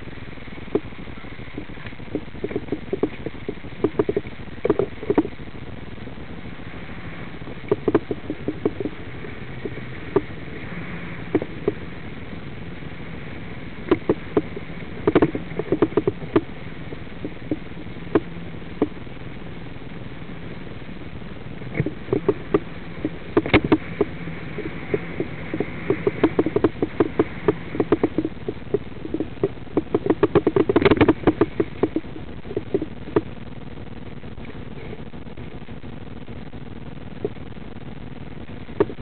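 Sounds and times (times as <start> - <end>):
sharp clicks and knocks: 1.5 - 5.4, 7.6 - 9.0, 13.9 - 16.5, 21.7 - 33.3.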